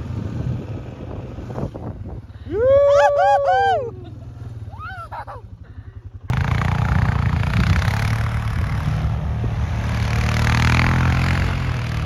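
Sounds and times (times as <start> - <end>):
quad engine under throttle: 0.0 - 2.5, 3.5 - 12.0.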